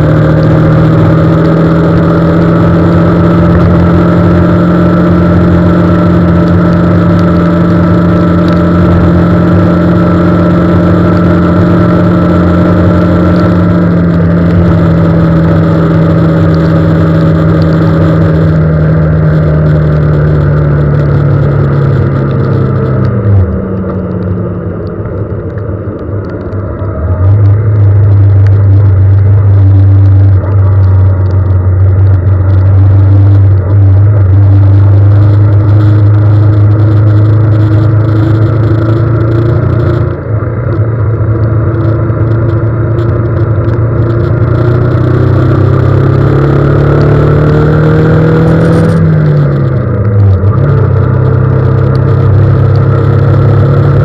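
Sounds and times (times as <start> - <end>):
vehicle engine running: 0.0 - 54.0.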